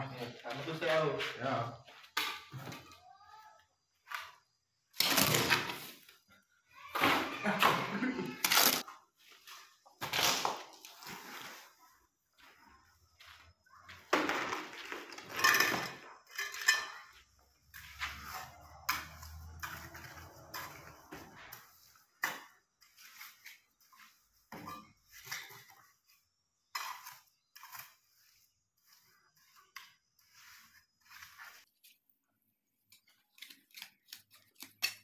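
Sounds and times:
trowel scraping on mortar and tile: 15.2 - 32.1.

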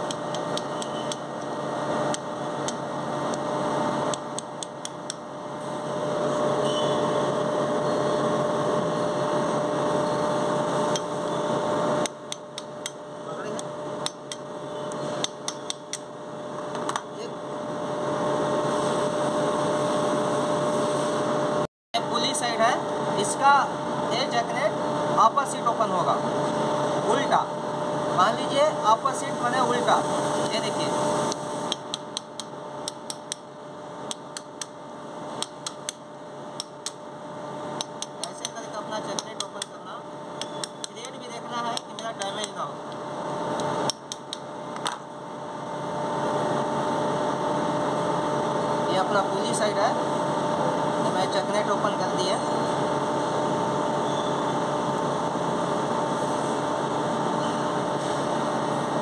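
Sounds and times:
machine humming: 0.0 - 59.0
hammer striking a spanner: 4.1 - 5.3, 13.6 - 14.5, 15.2 - 16.1, 35.4 - 36.0, 36.6 - 37.0, 37.8 - 39.8, 40.4 - 42.6, 43.6 - 45.1.

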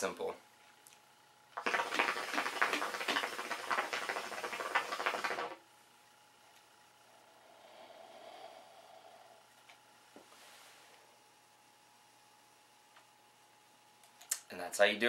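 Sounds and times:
hookah water bubbling: 1.6 - 5.6.

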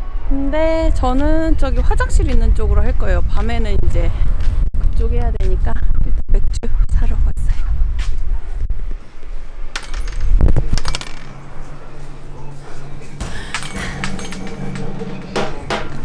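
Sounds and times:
wind noise on microphone: 0.0 - 10.9.

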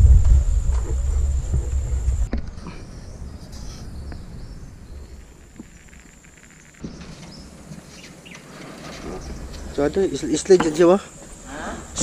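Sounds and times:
low rumble: 0.0 - 6.4
faint insect calls: 0.3 - 12.0.

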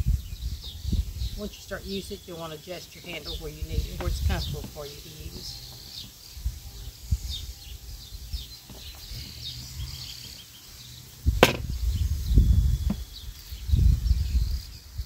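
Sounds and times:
low knocks and rumbling on glass: 11.4 - 11.7.

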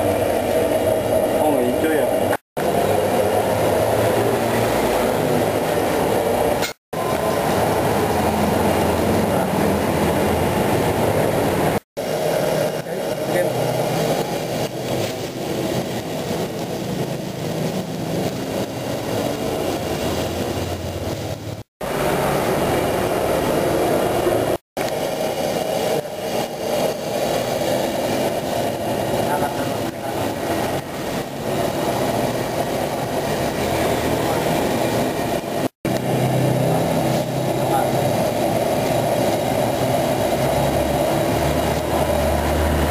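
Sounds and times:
gas burner roaring: 0.0 - 42.9.

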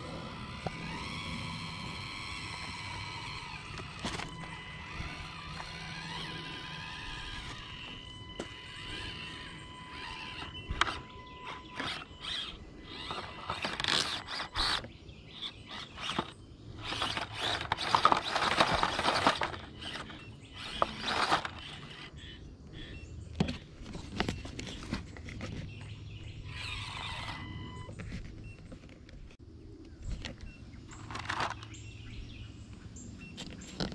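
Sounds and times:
tires scraping and crunching on rock: 0.0 - 22.4
small electric motor whine: 0.0 - 29.4, 30.0 - 32.4.

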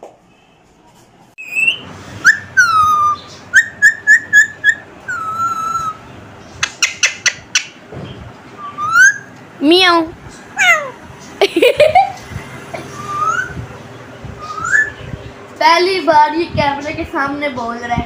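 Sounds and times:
parakeet whistling: 1.4 - 7.8, 8.6 - 9.3, 10.6 - 11.0, 12.8 - 15.2.

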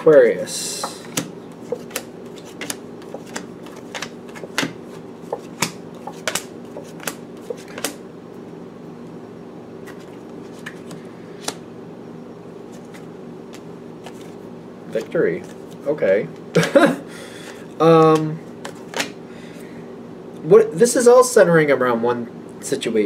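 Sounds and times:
cards tapping and flicking: 0.8 - 8.0, 18.0 - 19.2.

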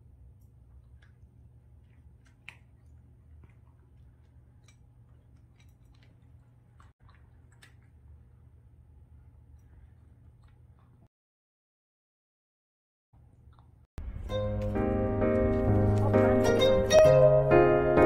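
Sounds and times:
cat crunching dry kibble: 0.8 - 8.4.

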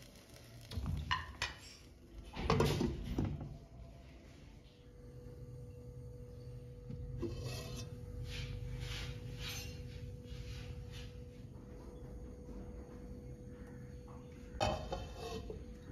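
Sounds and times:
faint sizzling: 0.0 - 2.8
steady low hum: 0.0 - 15.9.

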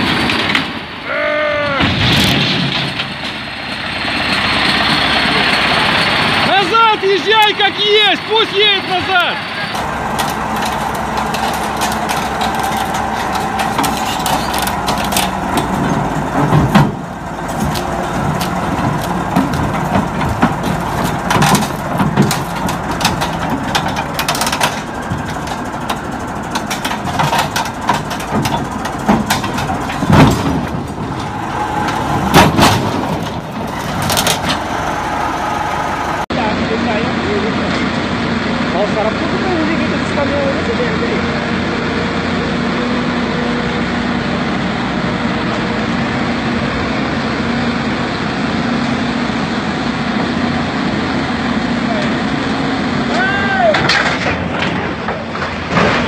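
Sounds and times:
steel tracks clanking: 0.0 - 45.7, 47.5 - 56.0
bulldozer diesel engine running: 0.0 - 56.0
loud metal bangs: 1.6 - 36.3.

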